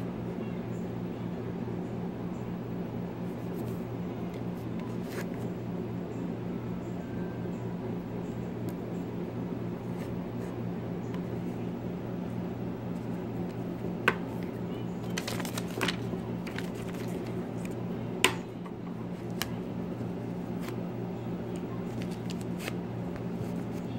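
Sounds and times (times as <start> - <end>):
steady low hum: 0.0 - 23.9.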